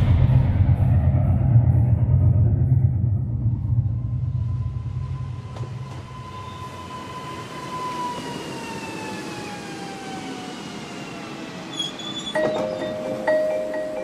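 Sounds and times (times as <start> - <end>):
passenger train passing: 3.3 - 14.0
chiming mallet percussion music: 12.4 - 14.0.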